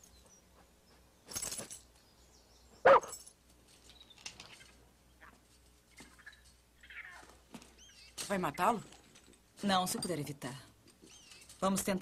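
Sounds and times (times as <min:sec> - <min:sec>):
dog barking: 0:02.8 - 0:03.2.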